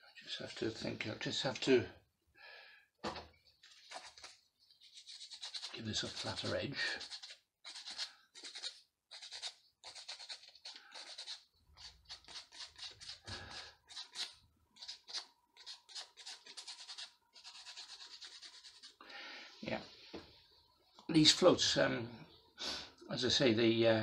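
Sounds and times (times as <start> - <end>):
sandpaper rasping on wood: 4.9 - 13.3, 13.9 - 18.9.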